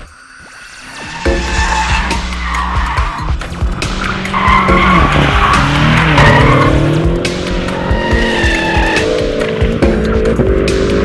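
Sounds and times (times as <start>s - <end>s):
tyres squealing: 0.4s - 6.9s, 7.6s - 9.2s
car engine revving hard: 1.2s - 11.0s.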